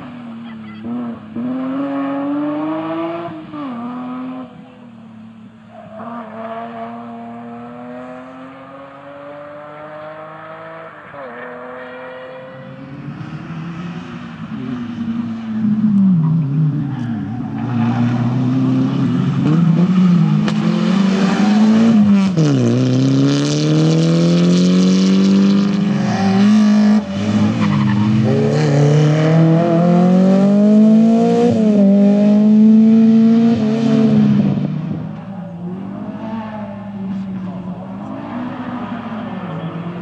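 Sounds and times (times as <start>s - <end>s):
rally car engine accelerating: 5.8s - 40.0s.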